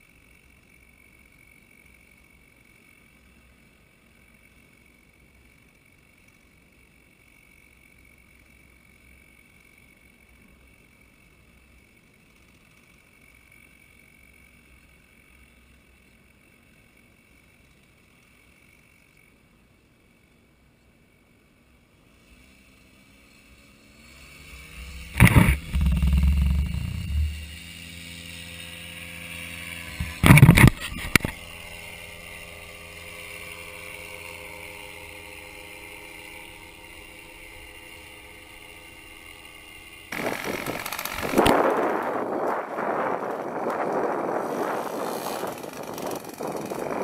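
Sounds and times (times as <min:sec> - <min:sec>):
paramotor engine drone: 0:00.0 - 0:47.0
wind gusts on microphone: 0:40.2 - 0:47.0.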